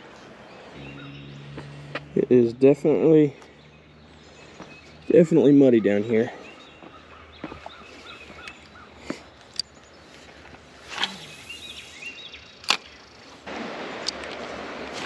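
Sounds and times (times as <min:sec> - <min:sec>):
steady rushing noise: 0:13.4 - 0:15.0.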